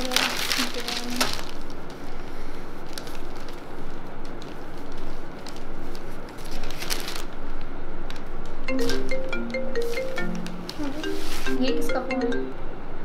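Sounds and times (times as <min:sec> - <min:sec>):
newspaper pages rustling: 0:00.0 - 0:07.6, 0:10.6 - 0:11.5.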